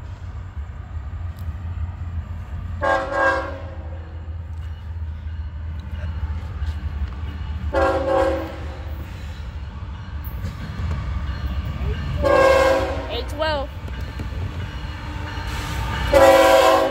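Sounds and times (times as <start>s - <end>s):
train rumbling: 0.0s - 16.9s
locomotive air horn blasts: 2.8s - 4.0s, 7.7s - 8.8s, 12.2s - 13.3s, 15.5s - 16.9s.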